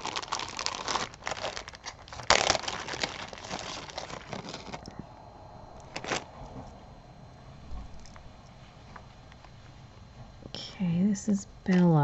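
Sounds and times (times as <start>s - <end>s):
wrapping crinkling and rustling: 0.0s - 5.0s, 5.8s - 6.6s.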